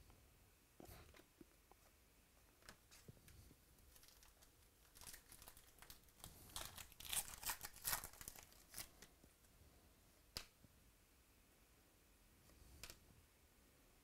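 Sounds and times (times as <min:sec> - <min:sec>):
foil wrapper tearing and crinkling: 0:03.9 - 0:09.1.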